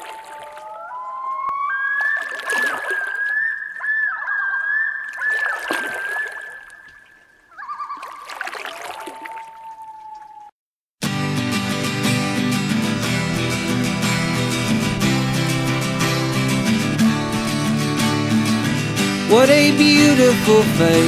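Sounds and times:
long wavering animal calls: 0:00.0 - 0:10.5
water splashing: 0:00.0 - 0:10.5.

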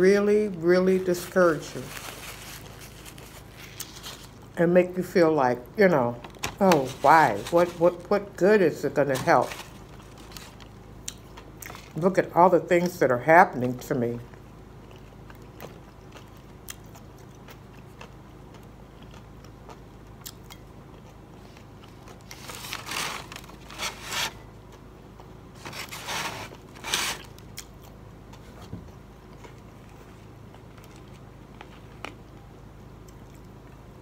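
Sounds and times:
crunchy food being chewed: 0:01.6 - 0:04.6, 0:09.5 - 0:12.0, 0:14.3 - 0:34.0.

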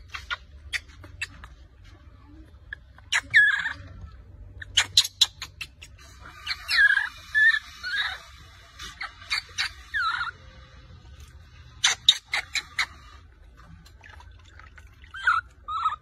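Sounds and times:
baby monkey squealing: 0:00.0 - 0:01.6, 0:02.7 - 0:10.5, 0:11.8 - 0:13.2, 0:15.1 - 0:16.0.

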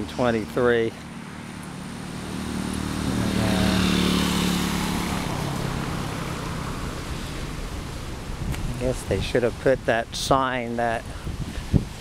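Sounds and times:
vehicle engine passing by: 0:00.0 - 0:09.3.

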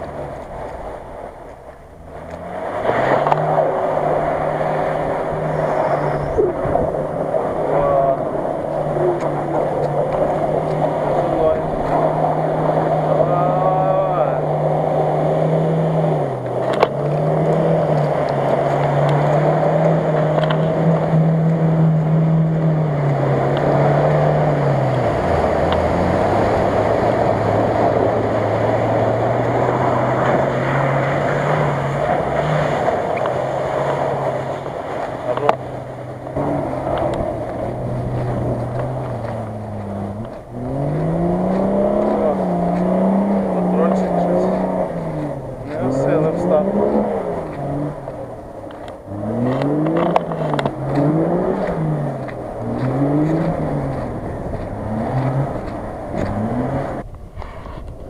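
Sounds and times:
suv engine labouring through mud: 0:00.0 - 0:58.0.

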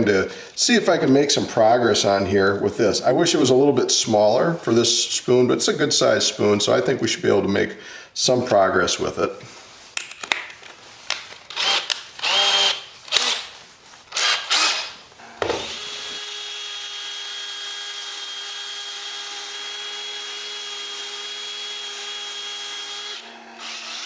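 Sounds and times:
cordless drill sanding wood: 0:11.5 - 0:24.0.

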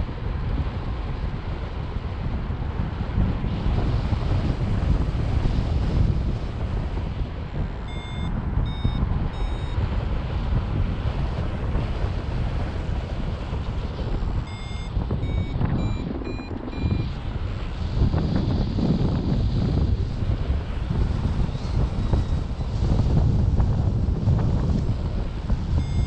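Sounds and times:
wind rushing over microphone: 0:00.0 - 0:26.0
variometer beeping: 0:07.9 - 0:09.9, 0:14.3 - 0:17.2, 0:25.8 - 0:26.0.

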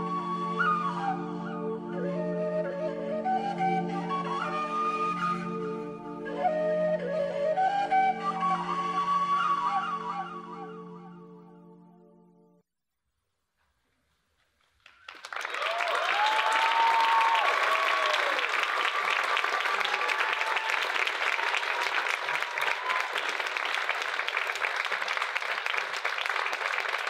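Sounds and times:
audience applauding: 0:14.6 - 0:27.0
people cheering and whooping: 0:15.2 - 0:27.0.

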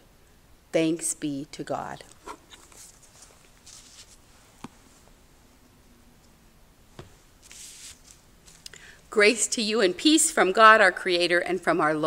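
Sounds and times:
light rustle: 0:02.1 - 0:05.1.

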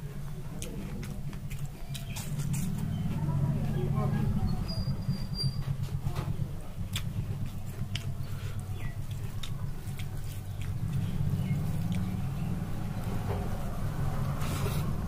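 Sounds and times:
steady low hum: 0:00.0 - 0:15.0
person chewing: 0:00.5 - 0:03.0, 0:06.9 - 0:12.1.

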